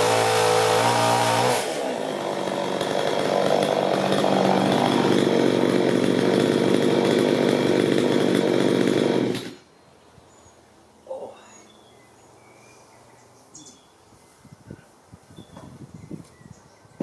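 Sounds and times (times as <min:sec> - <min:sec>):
chainsaw cutting and idling: 0:00.0 - 0:09.7.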